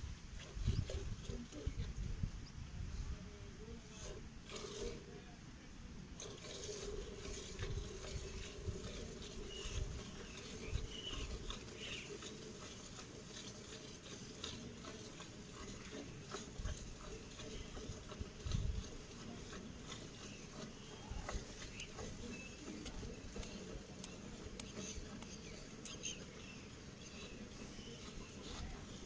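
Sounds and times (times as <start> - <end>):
milk squirting into a steel pail: 6.2 - 29.0.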